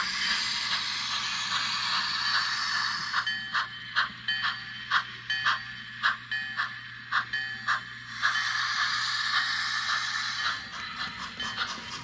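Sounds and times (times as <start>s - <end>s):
steam hiss: 0.0s - 3.7s, 7.7s - 12.0s
model locomotive chuffing: 0.0s - 12.0s.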